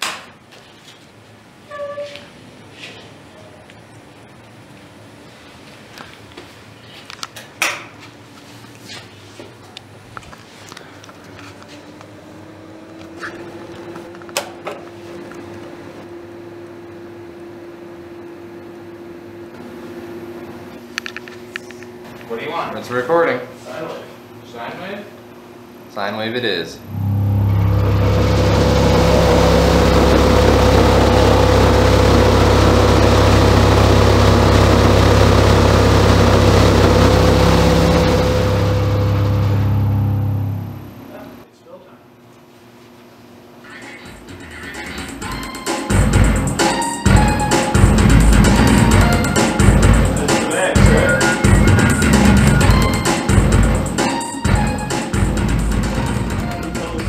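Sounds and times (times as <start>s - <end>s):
electrical hum: 2.4s - 42.2s, 43.1s - 57.0s
loud low subwoofer hum: 26.8s - 41.4s, 45.9s - 57.0s.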